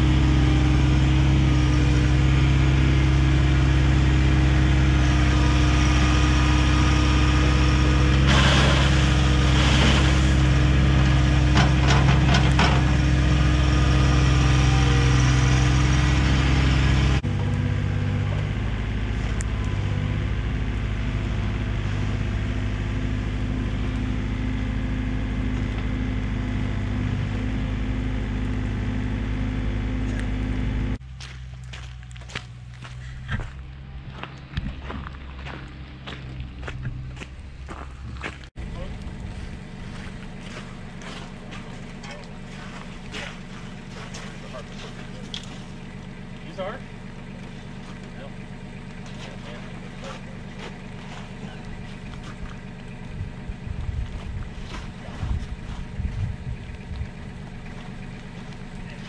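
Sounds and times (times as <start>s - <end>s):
rush of dirt and stones: 0.0s - 17.3s, 31.0s - 59.0s
diesel engines running: 0.0s - 59.0s.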